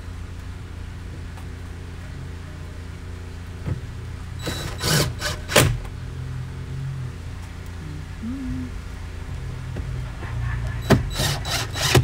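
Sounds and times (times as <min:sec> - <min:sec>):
cordless drill spinning: 0:04.4 - 0:05.5, 0:11.1 - 0:12.0.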